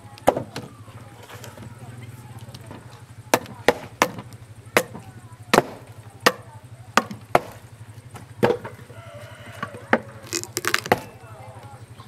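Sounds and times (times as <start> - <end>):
cleaver chopping pumpkin: 0.2 - 0.7, 3.3 - 7.7, 9.6 - 11.2.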